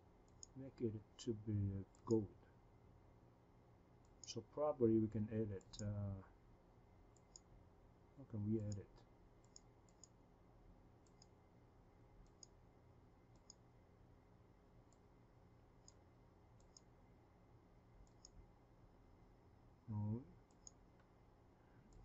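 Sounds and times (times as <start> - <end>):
low room hum: 0.0 - 22.0
computer mouse clicks: 0.3 - 0.6, 7.1 - 7.5, 8.6 - 8.8, 9.4 - 10.2, 11.0 - 11.4, 12.2 - 12.6, 13.3 - 13.6, 15.8 - 16.0, 16.6 - 16.9, 18.0 - 18.4, 20.4 - 21.1.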